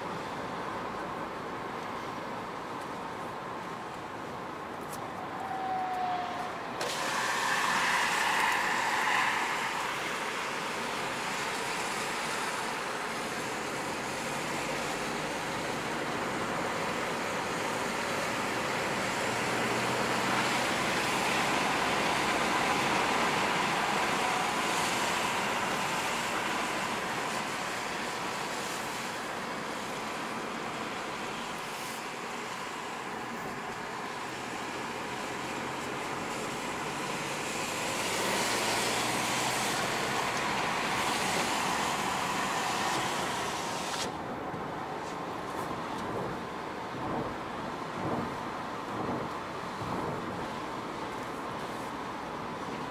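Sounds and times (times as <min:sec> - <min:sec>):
tyre and wind noise in car: 0:00.0 - 0:52.9.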